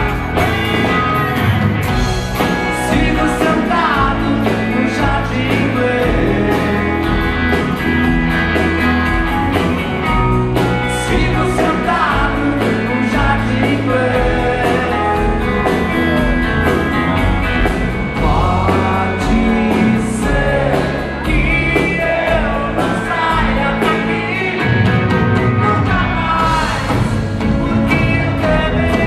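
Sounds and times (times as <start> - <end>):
drum kit beat: 0.0 - 29.0
electric guitar: 0.0 - 29.0
man singing: 2.4 - 7.6, 10.6 - 29.0.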